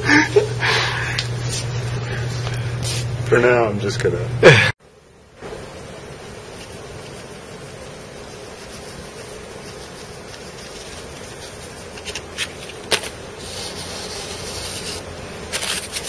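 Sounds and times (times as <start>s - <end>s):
hand rubbing powdery surface: 1.4s - 3.2s, 6.6s - 16.0s
paper packet crinkling: 9.8s - 16.0s.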